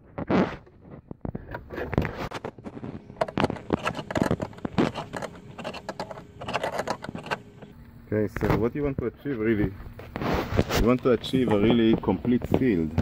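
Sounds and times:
metal scraping: 0.2s - 7.8s.

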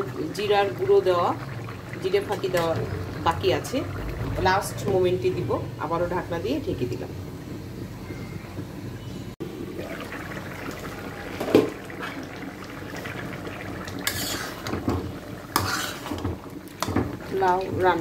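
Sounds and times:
curry simmering: 0.0s - 18.0s
metal spatula scraping a pan: 14.0s - 17.0s.

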